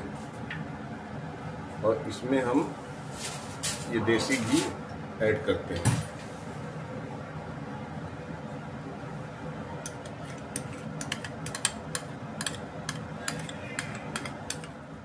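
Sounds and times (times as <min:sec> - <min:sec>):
metal spoon scraping a pan: 0:09.9 - 0:14.8.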